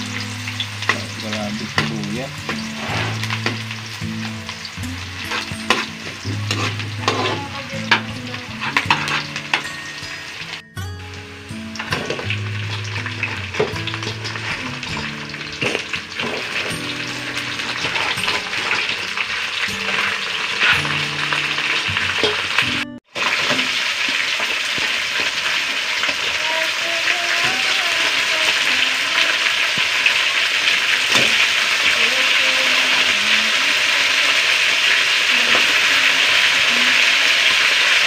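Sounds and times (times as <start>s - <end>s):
crabs sizzling in a wok: 0.0s - 38.0s.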